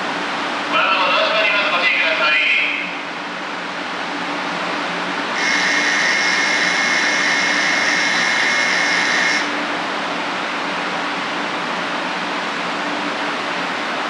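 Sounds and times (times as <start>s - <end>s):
steady low hum: 3.0s - 14.0s
station departure bell ringing: 5.4s - 9.6s.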